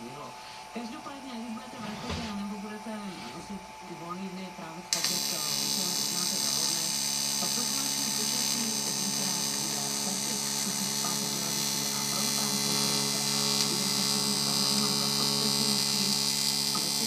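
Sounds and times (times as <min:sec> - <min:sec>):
welding arc buzzing and hissing: 0:04.9 - 0:17.0.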